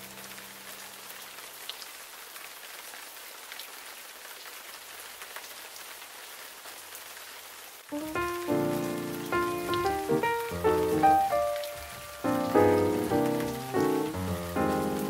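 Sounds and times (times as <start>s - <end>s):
soft rainfall: 0.0s - 15.0s
gentle background music: 7.9s - 15.0s
rain drop ticks: 7.9s - 15.0s.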